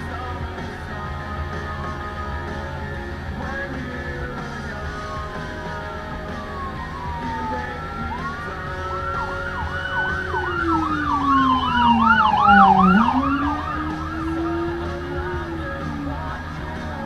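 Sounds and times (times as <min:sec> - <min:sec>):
ambulance siren: 0:03.8 - 0:17.0.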